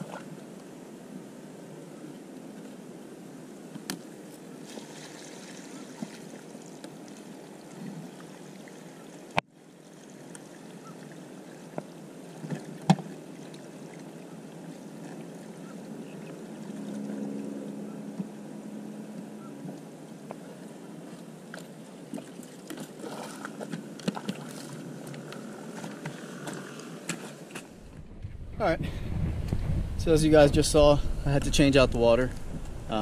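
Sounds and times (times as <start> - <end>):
water sloshing and splashing: 4.5 - 18.4, 19.0 - 28.5.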